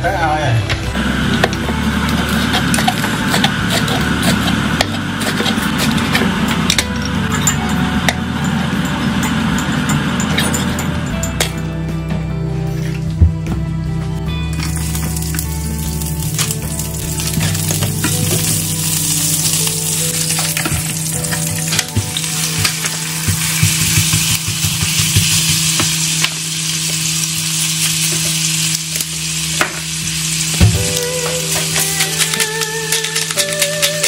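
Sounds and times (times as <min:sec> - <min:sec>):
spatula stirring and tapping pan: 0:01.5 - 0:06.9, 0:20.5 - 0:26.4
food sizzling in oil: 0:14.6 - 0:34.0.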